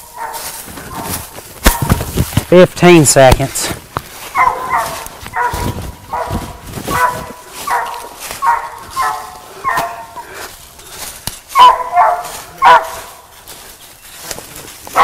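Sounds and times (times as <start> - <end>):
dog barking: 0.0 - 2.0, 4.3 - 10.2, 11.5 - 13.2.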